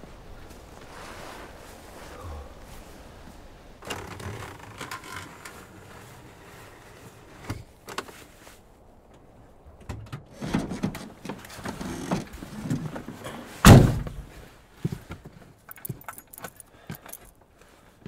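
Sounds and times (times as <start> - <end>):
rustling: 0.0 - 9.7.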